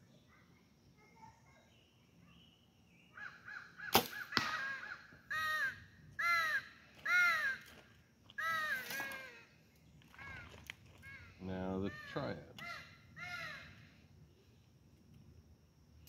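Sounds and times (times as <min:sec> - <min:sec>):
bird cawing: 0:03.2 - 0:14.0
arrow hitting target: 0:03.9 - 0:04.8
bow release crack: 0:03.9 - 0:04.9.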